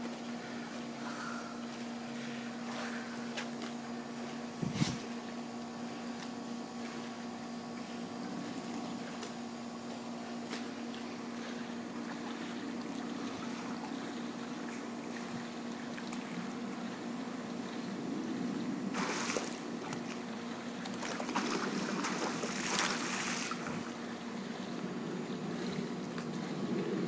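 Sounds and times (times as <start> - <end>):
low mechanical hum: 0.0 - 27.0
water sloshing and splashing: 5.9 - 25.0.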